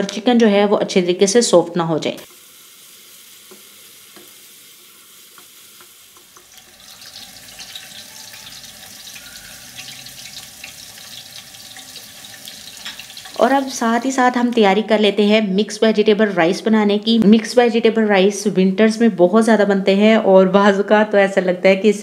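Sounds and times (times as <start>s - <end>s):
chicken sizzling in a frying pan: 2.2s - 14.6s
onions frying in oil: 2.2s - 14.8s.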